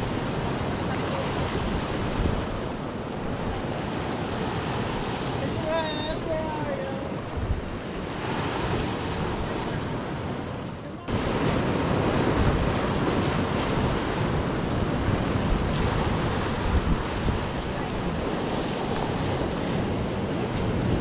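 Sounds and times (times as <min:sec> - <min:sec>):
sea waves breaking over rocks: 0:00.0 - 0:21.0
wind buffeting microphone: 0:00.0 - 0:21.0.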